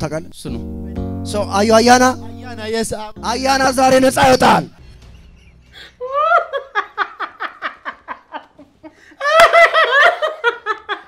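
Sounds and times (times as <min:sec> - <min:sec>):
man and woman laughing: 0:04.8 - 0:11.0.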